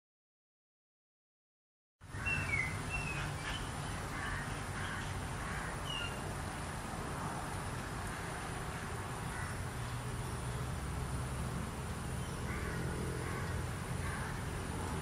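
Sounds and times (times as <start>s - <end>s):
birds chirping: 2.1s - 6.3s, 12.0s - 15.0s.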